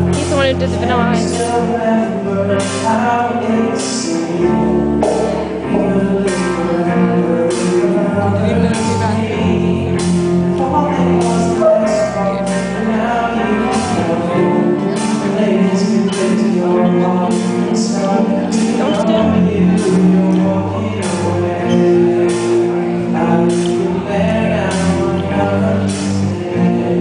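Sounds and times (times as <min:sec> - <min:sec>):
rock band playing: 0:00.0 - 0:27.0.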